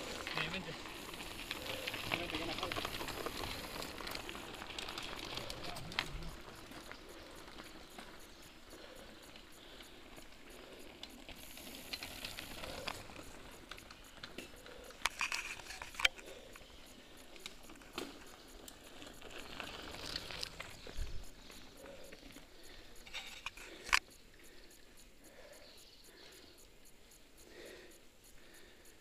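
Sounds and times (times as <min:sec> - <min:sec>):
sharp clicks and crunches: 0:00.0 - 0:09.9, 0:10.6 - 0:21.9, 0:23.0 - 0:24.1
bike tyres crunching on gravel: 0:00.0 - 0:23.9
faint outdoor noise: 0:00.0 - 0:29.0.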